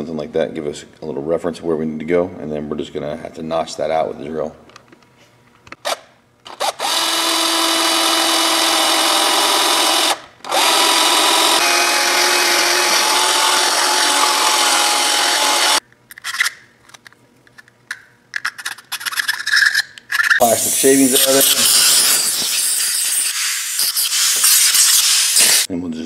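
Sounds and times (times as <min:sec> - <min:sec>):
power drill boring plastic: 0:06.5 - 0:15.8.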